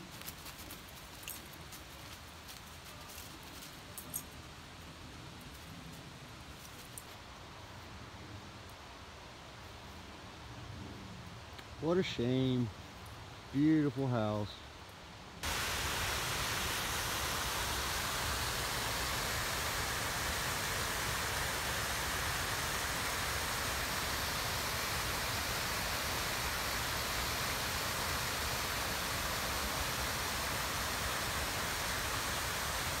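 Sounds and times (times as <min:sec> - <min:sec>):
waterfall rushing: 0:15.4 - 0:33.0.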